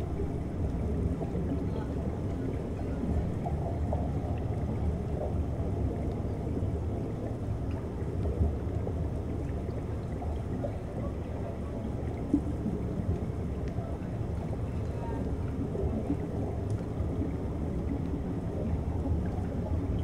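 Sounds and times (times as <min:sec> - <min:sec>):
low rumble of moving water underwater: 0:00.0 - 0:20.0
faint clicks: 0:16.6 - 0:16.9.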